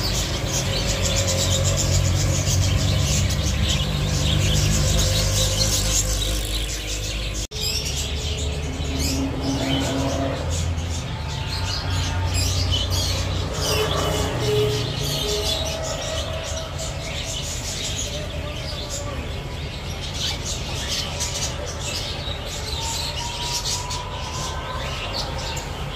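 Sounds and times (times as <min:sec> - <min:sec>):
cage birds chirping: 0:00.0 - 0:25.9.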